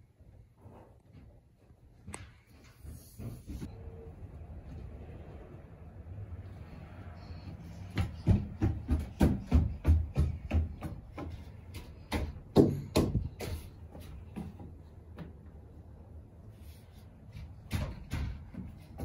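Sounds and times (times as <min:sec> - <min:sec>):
light thumps and knocks: 0:07.8 - 0:15.6.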